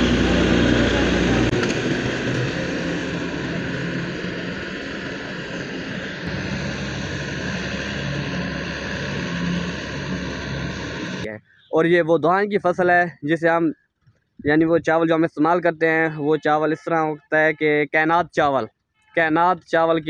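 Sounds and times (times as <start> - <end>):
combine harvester drone: 0.0 - 11.3.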